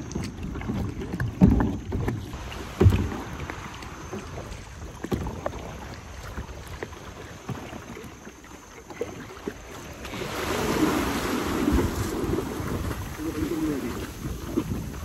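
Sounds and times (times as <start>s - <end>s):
small splashes and knocks: 0.0s - 15.0s
water lapping at kayak hull: 0.0s - 15.0s
small wave breaking: 2.3s - 6.4s, 9.9s - 15.0s.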